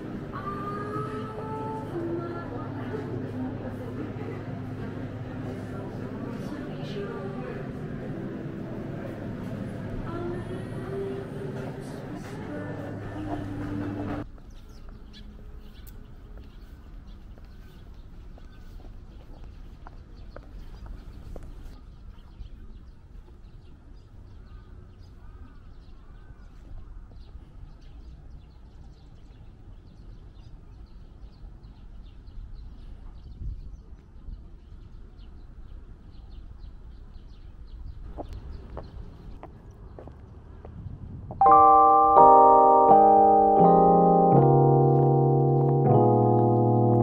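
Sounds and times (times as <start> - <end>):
birds calling: 38.0 - 40.2.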